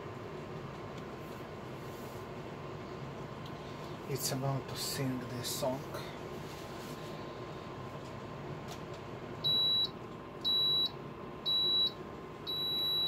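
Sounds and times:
high-pitched oven timer beeps: 9.4 - 13.0.

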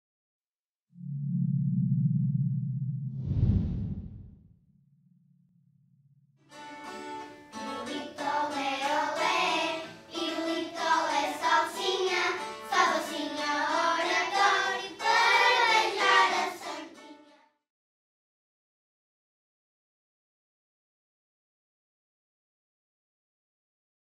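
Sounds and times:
children singing: 7.7 - 17.2.

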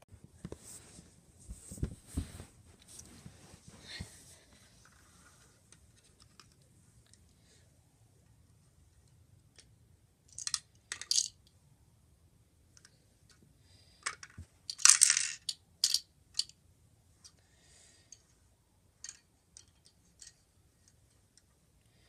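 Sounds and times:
plastic toy clicks and clatters: 10.3 - 11.4, 14.0 - 16.6.

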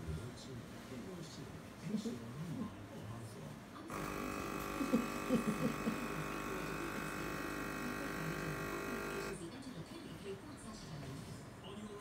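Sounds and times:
electric buzz: 3.9 - 9.4.

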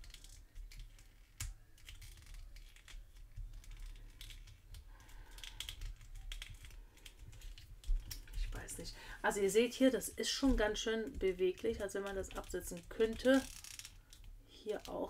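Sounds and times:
plastic toy clicks and scratches: 11.3 - 15.0.

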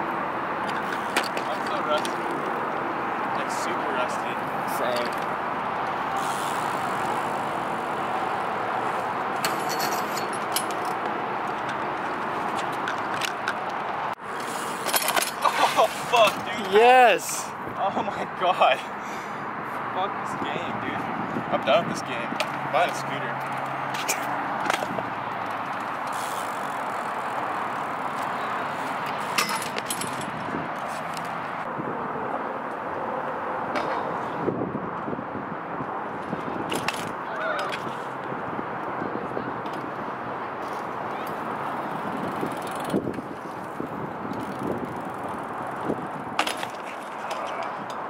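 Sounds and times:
bike tyres rolling on concrete: 0.1 - 18.8, 19.6 - 33.0, 33.8 - 48.0
bike hitting metal rail: 29.3 - 30.3.

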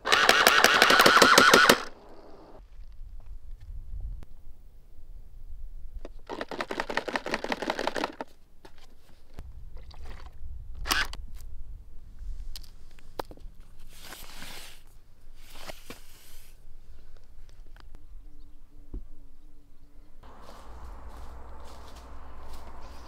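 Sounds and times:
toy water pistol clicks: 0.1 - 2.0.

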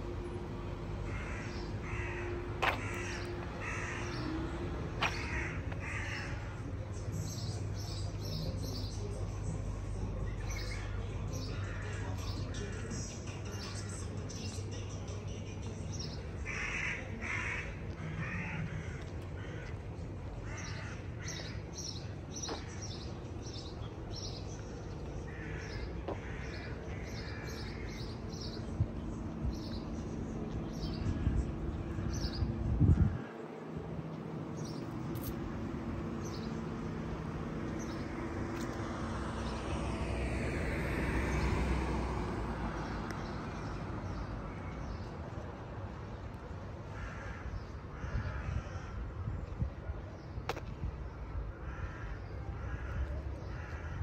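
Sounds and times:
birds harsh calls: 1.0 - 9.2, 20.4 - 40.0, 46.9 - 49.0, 51.5 - 54.0.

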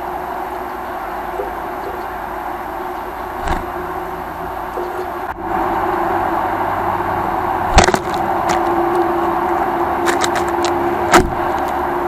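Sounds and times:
steady mechanical hum: 0.0 - 12.0
sharp knocks: 3.4 - 3.8, 7.7 - 8.7.

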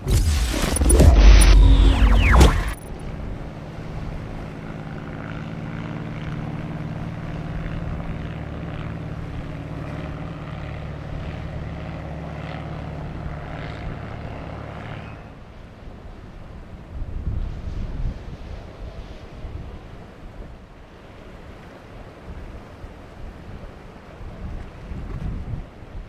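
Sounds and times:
boat engines droning: 0.0 - 16.8.

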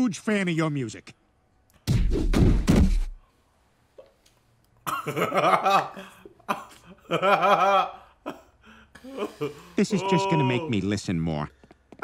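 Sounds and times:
man laughing: 4.9 - 10.6.

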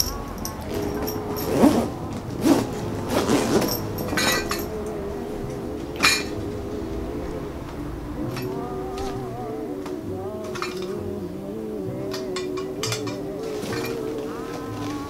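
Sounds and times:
drinking glasses clinking: 0.0 - 1.6, 3.3 - 5.0, 6.0 - 6.5, 10.4 - 11.0.

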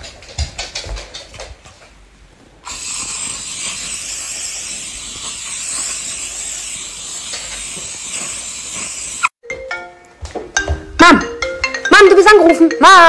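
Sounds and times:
aerosol spray can hissing: 2.6 - 9.4.

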